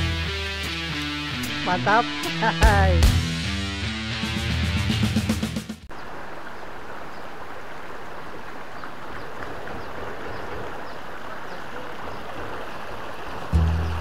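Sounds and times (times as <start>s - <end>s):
stream running over stones: 5.9s - 14.0s.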